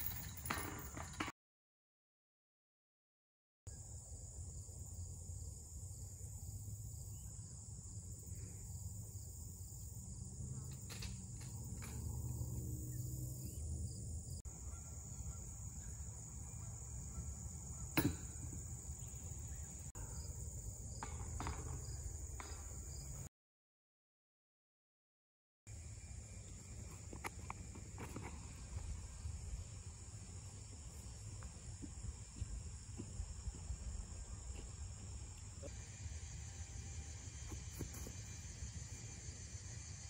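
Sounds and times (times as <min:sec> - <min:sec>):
insects chirring: 0:03.7 - 0:23.3, 0:25.7 - 0:40.0.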